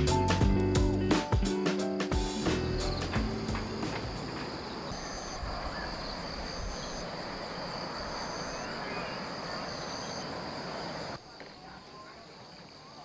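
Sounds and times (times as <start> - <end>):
higher insect call: 2.3 - 13.0
outdoor background hiss: 2.3 - 13.0
insect high-pitched trill: 2.6 - 11.2.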